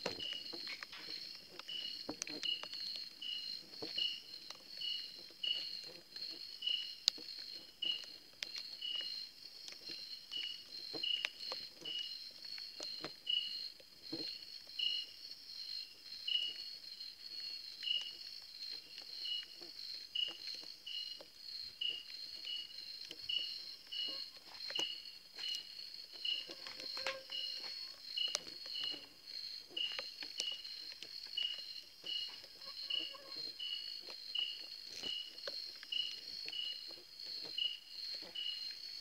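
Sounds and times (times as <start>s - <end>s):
insect lower chirp: 0.0s - 39.0s
insect high trill: 21.9s - 38.7s.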